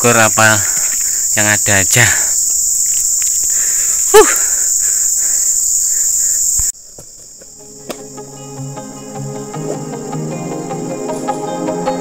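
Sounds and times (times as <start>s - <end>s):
high-pitched insect chorus: 0.0s - 12.0s
quiet music: 7.6s - 12.0s.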